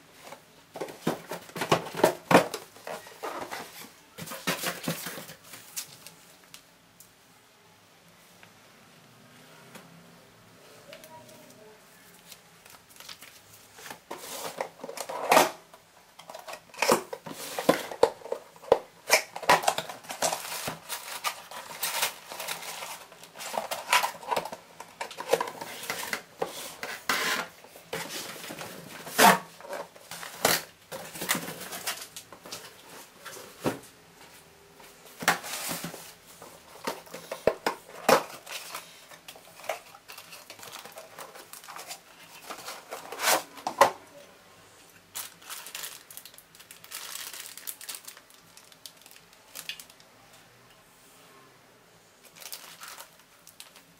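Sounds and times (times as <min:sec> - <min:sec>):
cardboard and paper being handled: 0:34.9 - 0:43.6.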